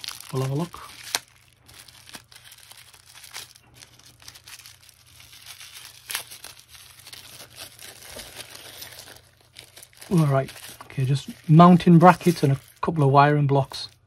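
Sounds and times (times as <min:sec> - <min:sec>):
plastic wrapper crinkling: 0:00.0 - 0:14.0
sharp wrapper crackles: 0:00.0 - 0:14.0.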